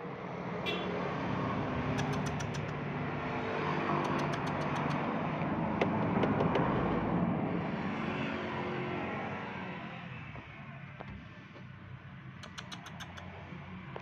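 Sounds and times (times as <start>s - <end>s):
vehicle passing: 0.2s - 10.8s
quick sharp clicks: 1.8s - 2.8s, 4.0s - 5.0s, 12.4s - 13.4s.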